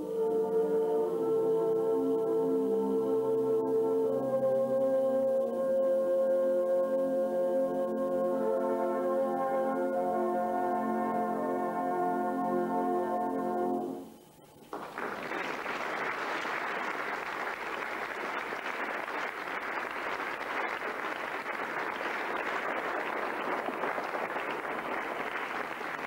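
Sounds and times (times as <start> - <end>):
audience applauding: 14.6 - 26.0.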